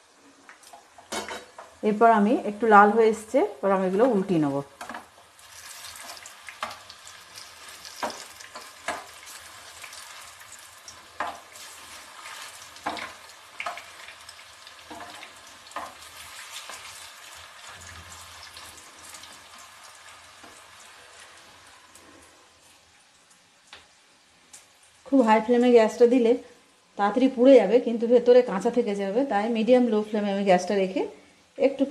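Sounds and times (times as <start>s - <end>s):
fritters sizzling in hot oil: 3.1s - 26.0s.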